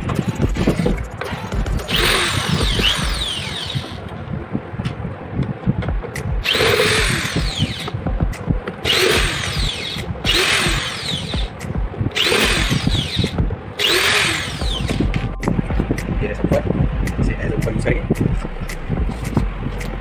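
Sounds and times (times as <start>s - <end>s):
cordless drill motor whine: 1.9s - 4.0s, 6.4s - 8.0s, 8.8s - 11.5s, 12.2s - 15.0s.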